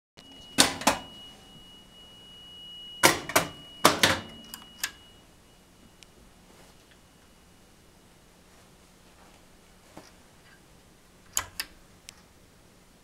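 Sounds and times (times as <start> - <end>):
faint high whine: 0.2 - 13.0
pinball machine clicks: 3.0 - 4.6.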